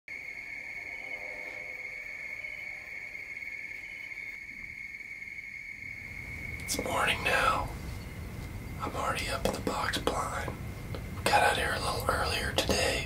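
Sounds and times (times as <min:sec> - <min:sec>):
crickets calling: 0:00.1 - 0:13.0.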